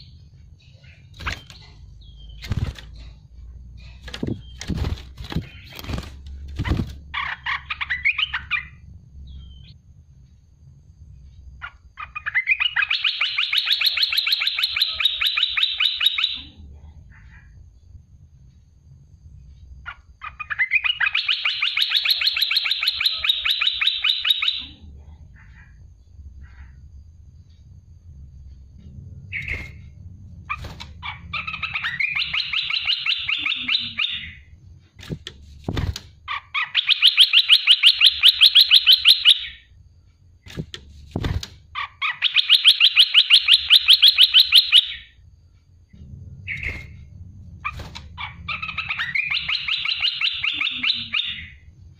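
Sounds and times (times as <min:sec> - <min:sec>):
low hum: 0:24.6 - 0:36.4, 0:45.0 - 0:49.8.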